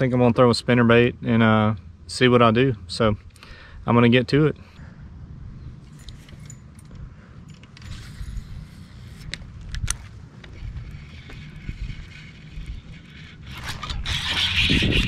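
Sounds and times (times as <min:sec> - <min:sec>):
wind buffeting microphone: 0:07.8 - 0:15.0.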